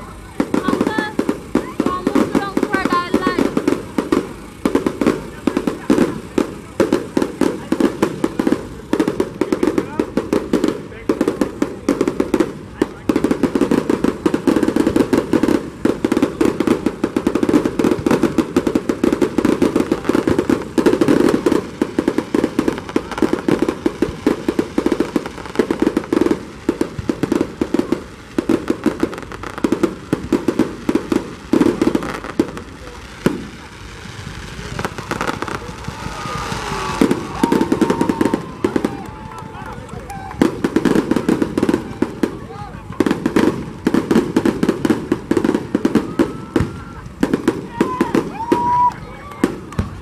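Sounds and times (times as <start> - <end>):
fireworks bangs and crackles: 0.0 - 50.0.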